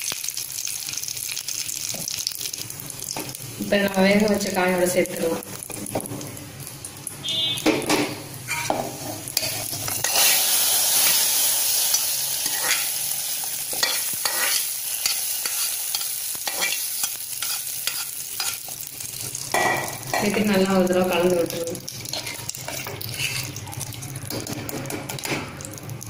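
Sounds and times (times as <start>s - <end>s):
hot oil sizzling: 0.0s - 26.0s
metal spoon clicking and scraping: 9.4s - 10.4s, 11.9s - 12.9s, 13.7s - 18.6s, 21.9s - 25.3s.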